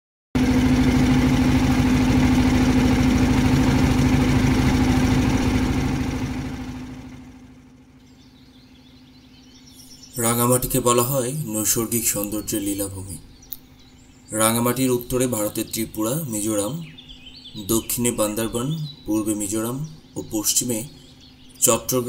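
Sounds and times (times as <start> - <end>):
motorboat engine running: 0.4 - 22.0
faint bird chirps: 7.8 - 22.0.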